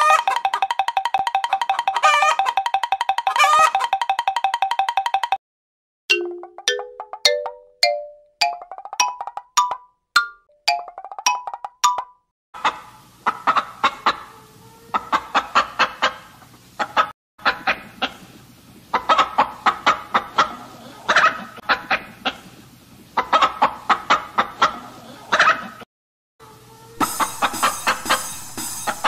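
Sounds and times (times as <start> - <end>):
chicken clucking: 0.0 - 4.0, 12.6 - 25.8, 26.9 - 29.0.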